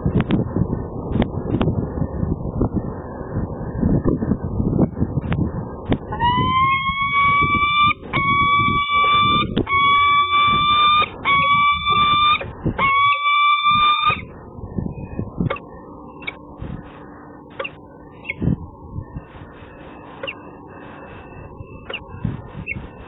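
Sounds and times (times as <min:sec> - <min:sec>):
wind rumble on microphone: 0:00.0 - 0:23.0
falcon calling: 0:06.1 - 0:14.3.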